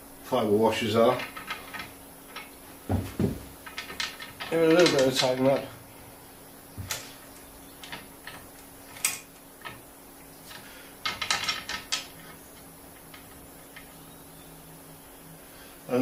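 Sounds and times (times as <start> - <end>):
metal nuts clicking: 1.1 - 2.6, 3.6 - 5.7, 7.8 - 9.9, 10.5 - 14.0.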